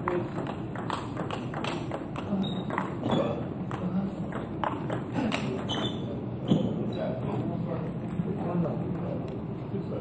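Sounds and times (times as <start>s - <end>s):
table tennis ball clicking: 0.0s - 3.1s.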